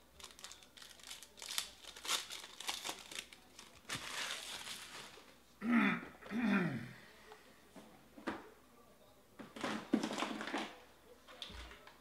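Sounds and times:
foil wrapper crinkling: 0.0s - 5.3s.

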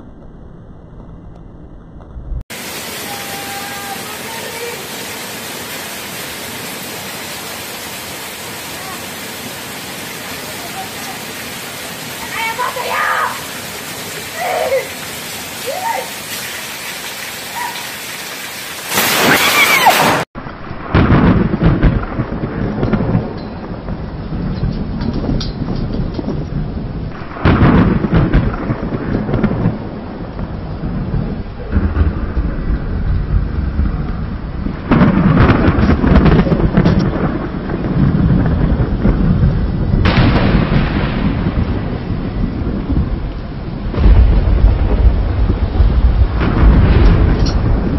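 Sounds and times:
heavy rain pouring: 0.0s - 47.9s
loud burst of noise: 18.8s - 22.1s
deep rolling thunder: 18.9s - 47.9s.

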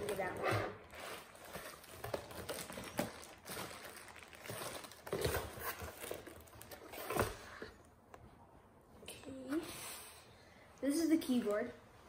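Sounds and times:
plastic wrap rustling: 0.0s - 7.4s.

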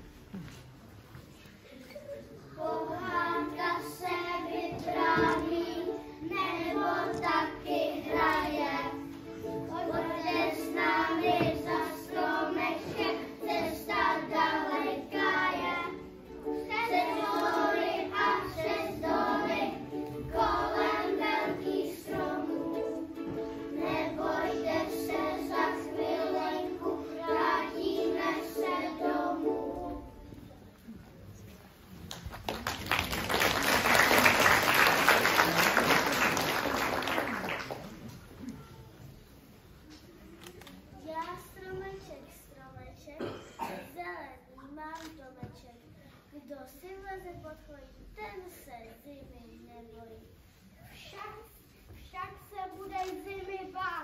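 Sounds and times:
children singing: 2.4s - 30.3s.

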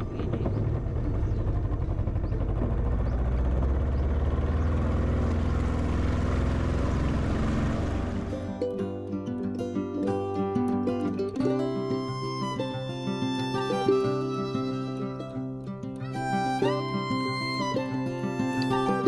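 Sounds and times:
outboard motor running: 0.0s - 8.5s
guitar music: 8.1s - 19.0s.

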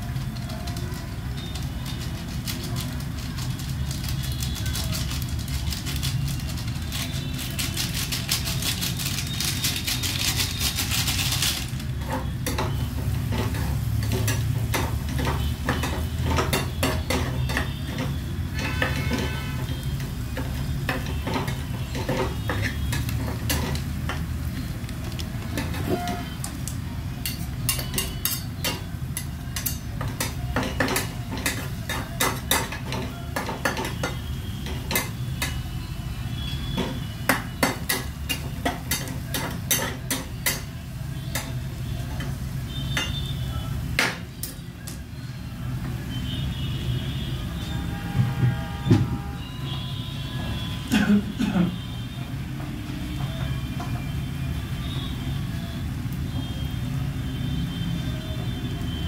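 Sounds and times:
metal spoon scraping a pan: 6.9s - 24.4s, 27.2s - 35.7s
food sizzling in a pan: 11.6s - 46.1s.

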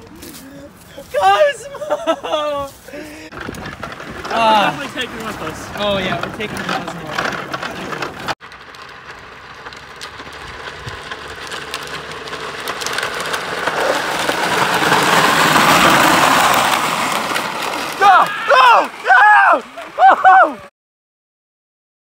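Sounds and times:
plastic wheels rolling on concrete: 0.0s - 20.7s.

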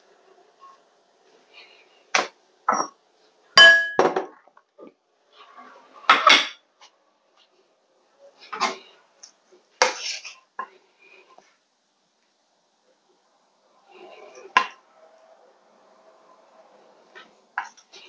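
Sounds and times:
ceramic dishes knocking on stone: 3.6s - 4.4s.

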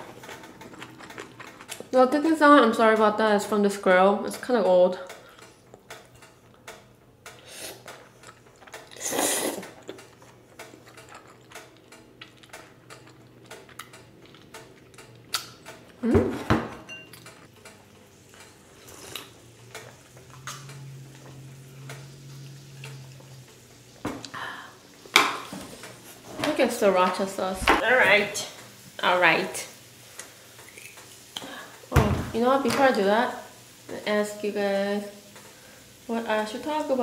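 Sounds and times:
electric grill clicking: 0.0s - 9.0s, 9.6s - 16.0s, 17.1s - 37.0s
person eating noodles: 0.1s - 1.9s, 7.4s - 16.0s.

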